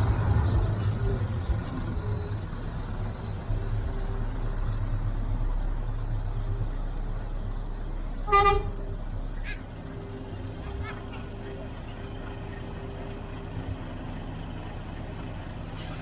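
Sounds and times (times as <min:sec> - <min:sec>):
truck diesel engine rumbling: 0:00.0 - 0:16.0.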